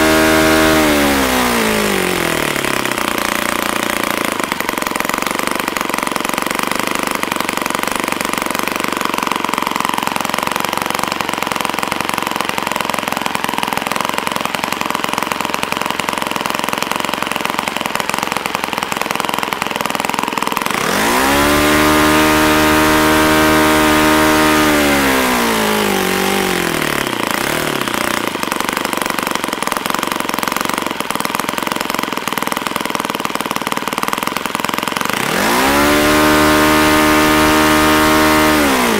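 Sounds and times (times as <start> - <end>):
model engine idling and revving: 0.0 - 38.9.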